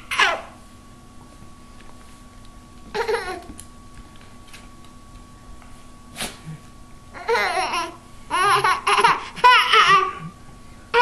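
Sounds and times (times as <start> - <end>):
baby giggling: 3.0 - 3.5, 7.2 - 10.4.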